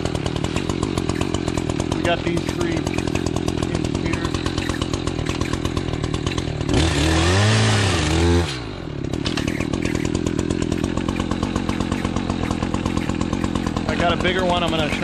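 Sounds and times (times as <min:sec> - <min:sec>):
chainsaw idling and revving: 0:00.0 - 0:15.0.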